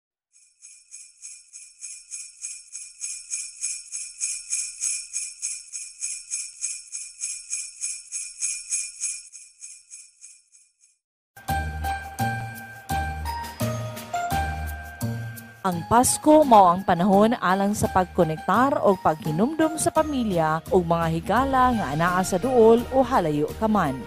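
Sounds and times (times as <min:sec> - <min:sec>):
sleigh bells shaken: 0:00.6 - 0:10.7.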